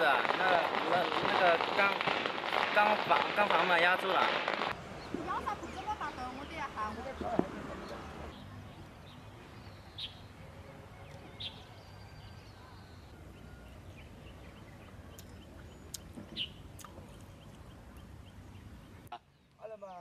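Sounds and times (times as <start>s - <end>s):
high bird chirps: 8.3s - 19.6s.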